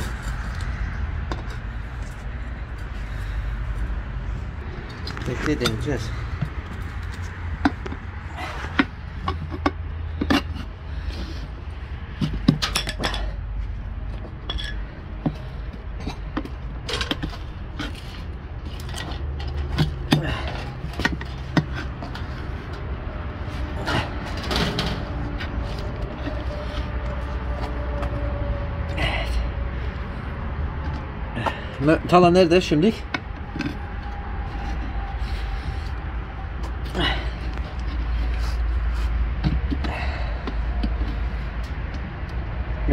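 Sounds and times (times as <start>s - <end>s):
low steady rumble: 0.0s - 42.9s
metal tools scraping wheel rim: 4.7s - 13.4s, 14.3s - 28.4s.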